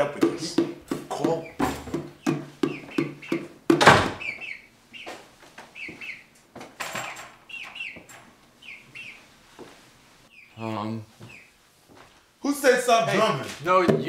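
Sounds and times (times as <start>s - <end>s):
chicken clucking: 0.0s - 3.6s, 4.2s - 6.4s
loud knock: 0.2s - 4.3s.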